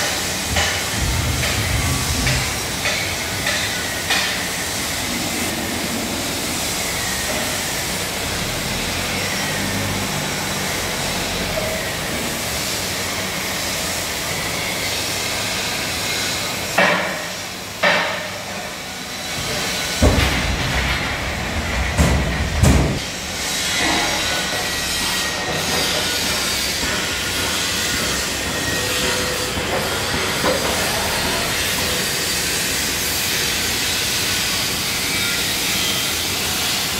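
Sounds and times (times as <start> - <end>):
sharp metal knocks: 0.0 - 4.5
loud bangs: 0.4 - 5.5.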